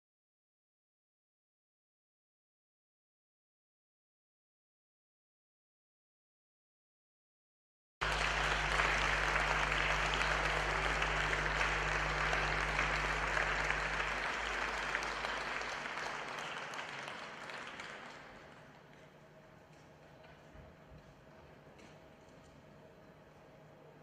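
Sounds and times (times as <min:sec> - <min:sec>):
audience applauding: 0:08.0 - 0:18.8.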